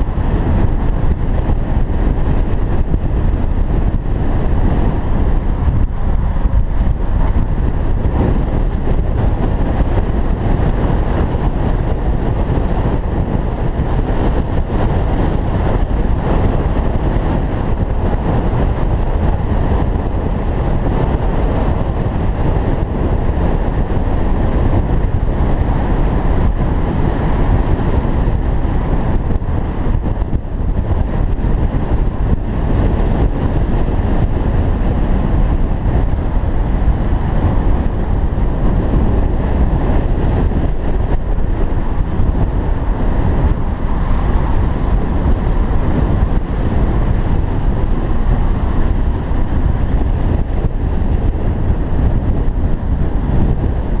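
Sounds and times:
road and engine noise: 0.0 - 54.0
wind rushing over microphone: 0.0 - 54.0.

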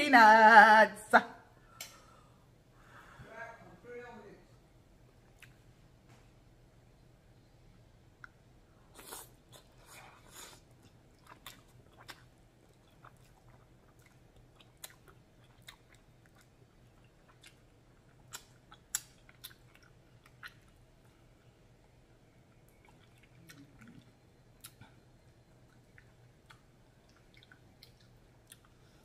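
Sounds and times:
wet chewing clicks: 10.8 - 21.2, 22.6 - 24.9, 25.6 - 28.8.

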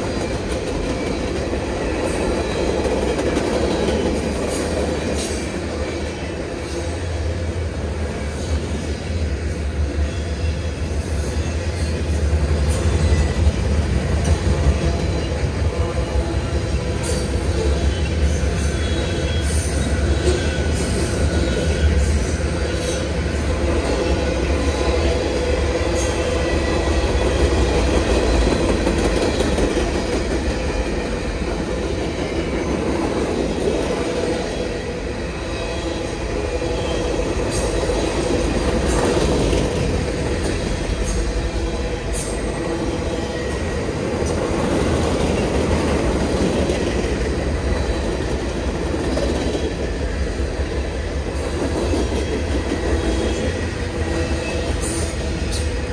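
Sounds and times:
train clicks: 0.0 - 7.2, 16.6 - 34.5, 37.0 - 42.7, 43.4 - 55.9
train wheels rumbling on rail: 0.0 - 55.9.

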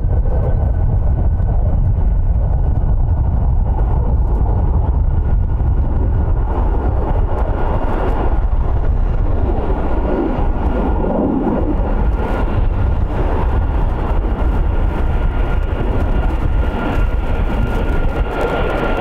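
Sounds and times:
jet engines rumbling with whine: 0.0 - 19.0.

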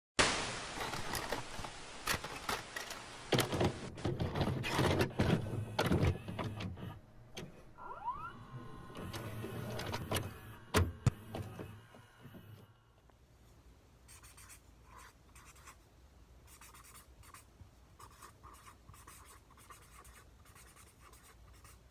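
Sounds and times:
tape hiss: 0.2 - 4.0
motor whirring: 7.8 - 12.6
rising motor whine: 7.8 - 12.7.

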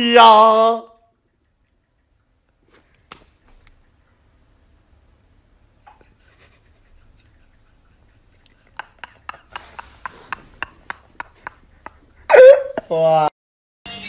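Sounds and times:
men's stifled laughter: 5.7 - 12.2.

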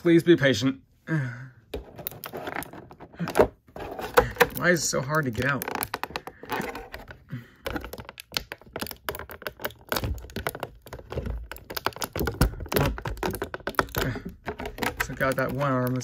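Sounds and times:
plastic packaging crackling: 3.9 - 16.0.

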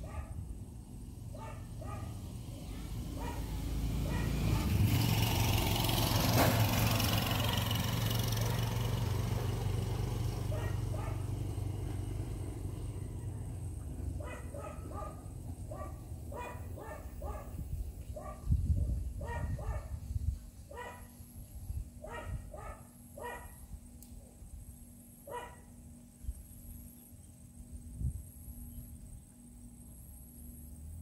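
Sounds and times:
dog barking: 0.0 - 0.4, 1.3 - 4.8, 8.4 - 8.7, 10.5 - 11.4, 14.2 - 17.6, 18.2 - 20.0, 20.7 - 21.1, 22.0 - 23.6, 25.3 - 25.7
vehicle engine passing: 0.0 - 20.2.

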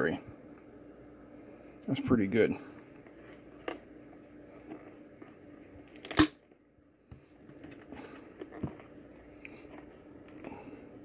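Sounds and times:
plastic device handling noise: 2.8 - 6.6, 7.2 - 10.7.

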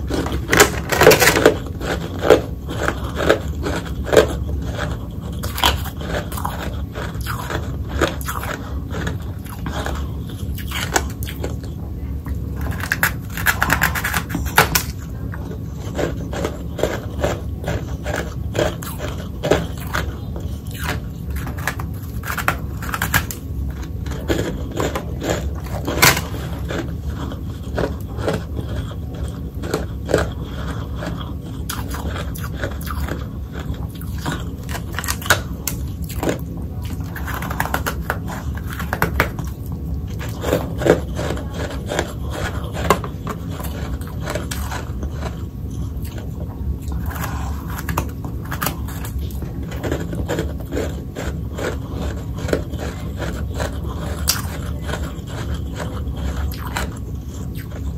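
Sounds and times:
steady low hum: 0.0 - 57.9
mouth crunching ice: 46.9 - 57.9.

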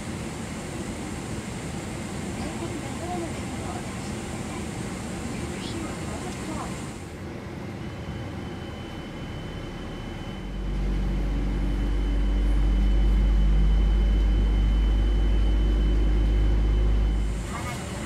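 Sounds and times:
airliner cabin hum and whine: 0.0 - 18.0
deep low rumble: 10.5 - 17.4.

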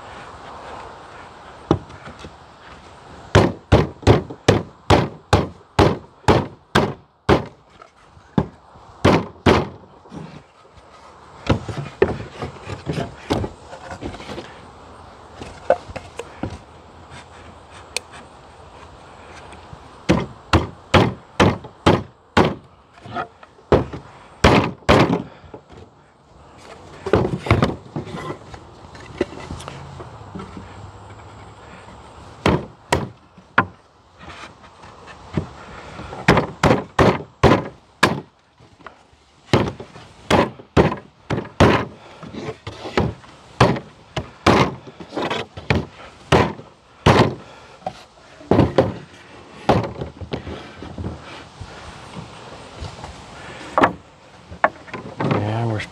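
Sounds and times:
wooden boards knocking on table: 8.4 - 9.8, 32.4 - 33.8, 42.9 - 47.4, 48.5 - 50.4.

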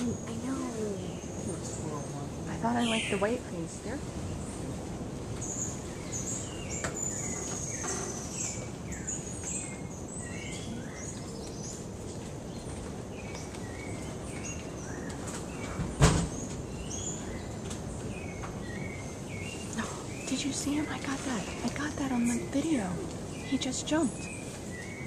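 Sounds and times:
steady background hiss: 0.0 - 25.0
loud thump: 15.9 - 16.4.

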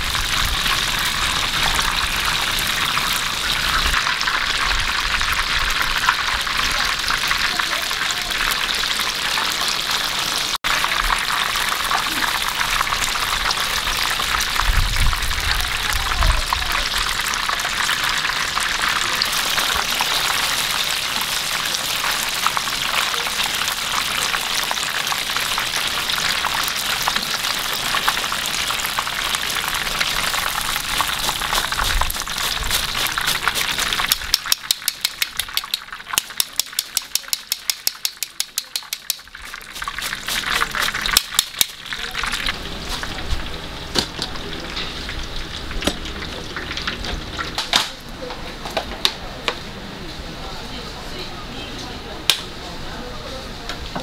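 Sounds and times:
shrimp deep-frying in oil: 0.0 - 49.4
wire strainer clicking: 34.1 - 39.3.

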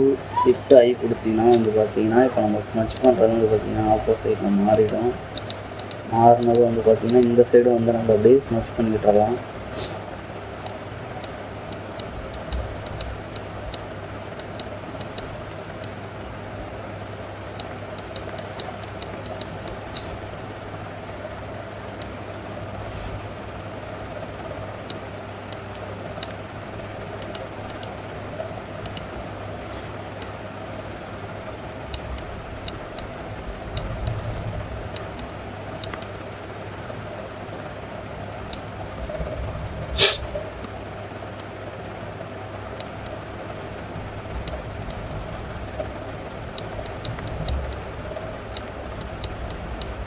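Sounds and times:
steady low hum: 0.0 - 50.0
mouse buttons clicking: 2.9 - 3.2, 4.7 - 7.3, 10.6 - 13.8, 14.4 - 15.9, 17.6 - 20.1, 27.2 - 27.9, 28.8 - 29.1, 34.9 - 36.1.

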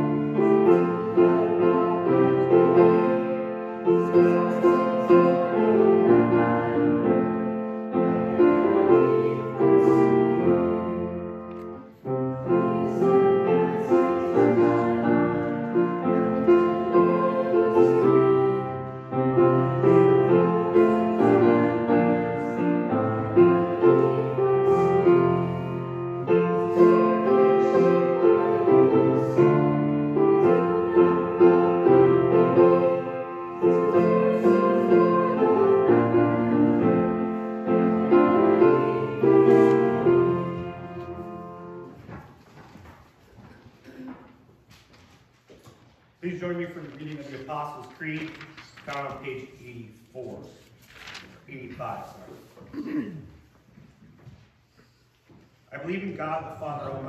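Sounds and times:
piano playing slow hymn: 0.0 - 42.4.

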